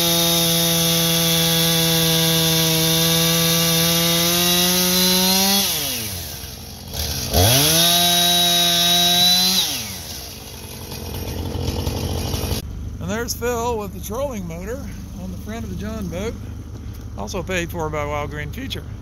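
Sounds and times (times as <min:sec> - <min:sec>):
chainsaw cutting log: 0:00.0 - 0:12.6.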